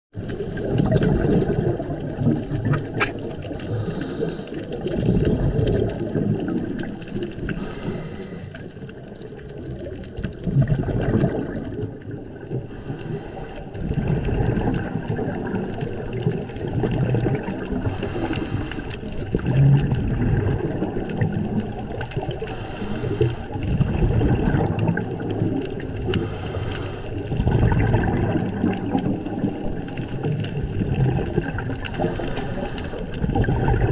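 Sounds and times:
underwater water surging: 0.1s - 33.9s
diver exhaling bubbles: 0.2s - 33.9s.

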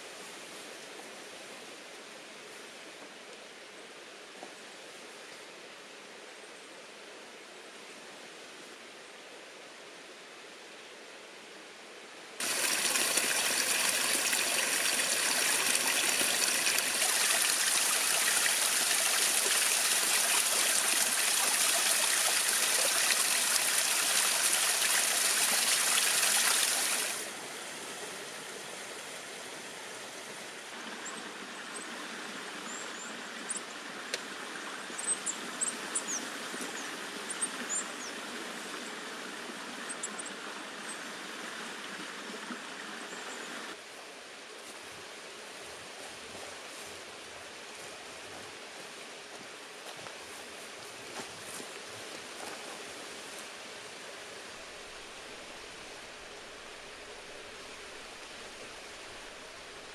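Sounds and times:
water running: 12.4s - 27.2s.

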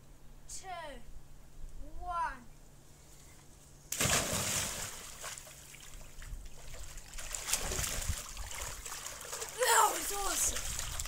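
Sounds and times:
child splashing in pool: 4.0s - 11.0s.

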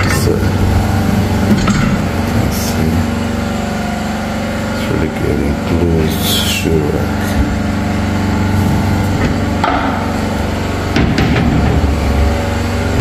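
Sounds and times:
engine drone: 0.0s - 13.0s
sharp knocks: 9.2s - 10.2s, 10.9s - 12.2s.

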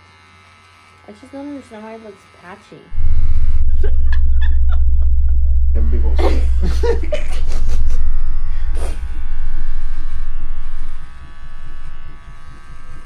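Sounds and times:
electric hair clippers buzzing: 0.0s - 2.9s, 8.1s - 13.0s.

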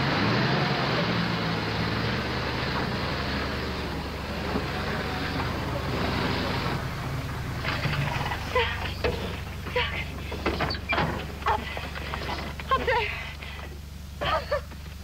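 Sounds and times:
car engines running: 0.0s - 15.0s
tyres rolling on dirt: 0.0s - 15.0s.

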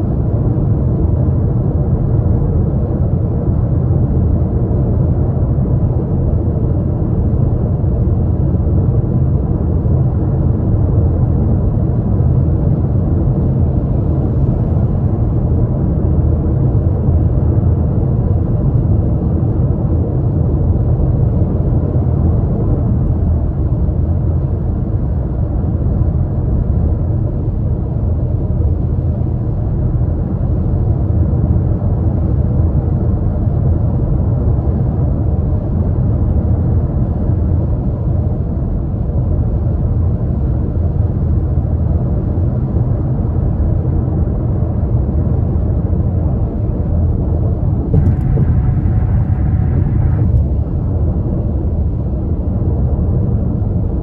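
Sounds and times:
road and tyre rumble: 0.0s - 33.7s, 34.5s - 54.0s
car engine: 47.8s - 51.2s.

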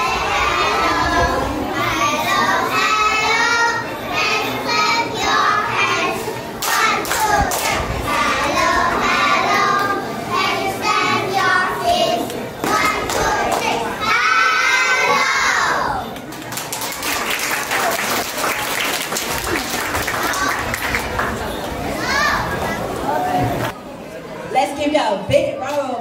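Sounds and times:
children singing into microphones: 0.0s - 16.1s.

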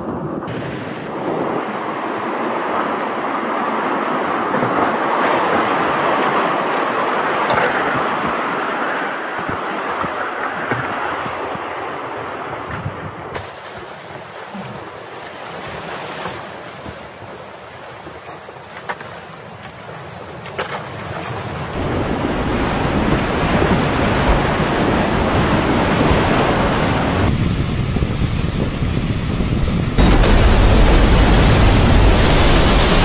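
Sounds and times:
wind on microphone: 0.0s - 13.4s, 20.6s - 33.0s
rushing meltwater: 0.5s - 33.0s.

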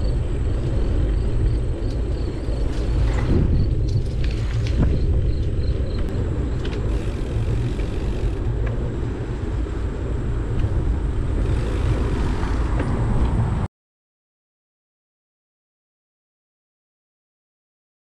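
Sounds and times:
wind buffeting microphone: 0.0s - 13.7s.

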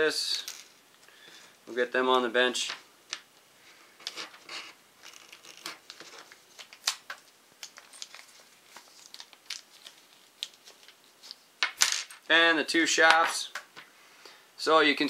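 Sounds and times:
plastic bag crinkling: 5.0s - 11.5s.

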